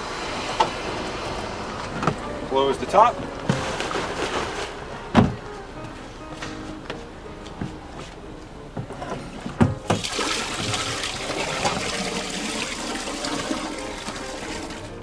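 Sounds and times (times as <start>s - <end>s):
water pouring from spout: 9.9s - 15.0s.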